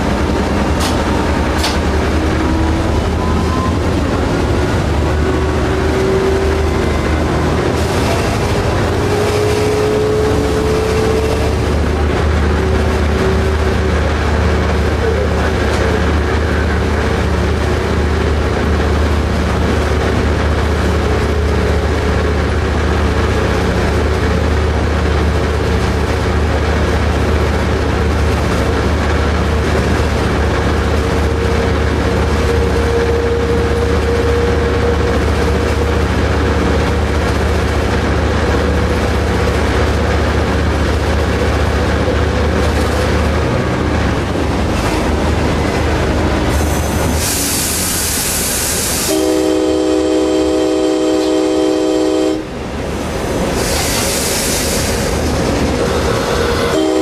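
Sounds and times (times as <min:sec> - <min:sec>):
diesel locomotive engine hum: 0:00.0 - 0:57.0
wheels rumbling on rail: 0:00.0 - 0:57.0.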